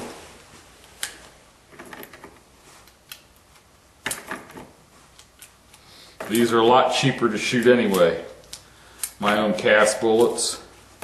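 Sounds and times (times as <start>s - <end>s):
metallic clicks of cartridges loading: 7.9s - 9.7s.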